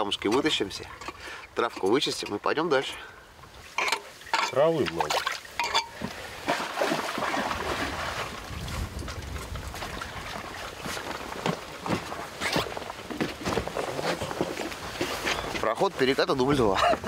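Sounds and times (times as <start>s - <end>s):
water trickling and splashing: 0.0s - 17.0s
knocks and rustles: 8.7s - 15.7s.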